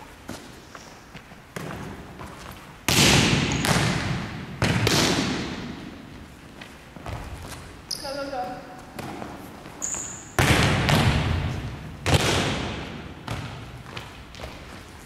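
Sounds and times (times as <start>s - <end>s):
volleyball smacks echoing: 1.6s - 6.0s, 10.2s - 14.6s.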